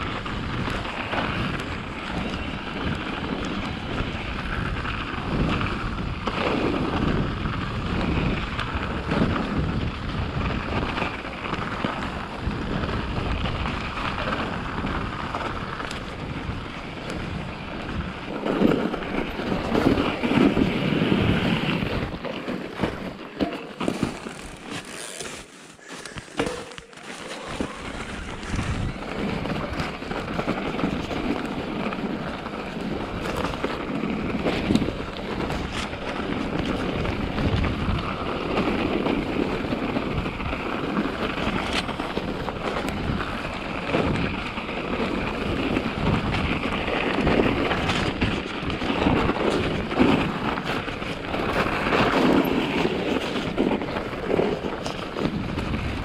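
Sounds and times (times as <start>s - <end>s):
wind buffeting microphone: 0.0s - 25.0s, 25.9s - 56.0s
bike bumps and rattles: 0.0s - 56.0s
bike tyre and trail noise: 0.0s - 56.0s.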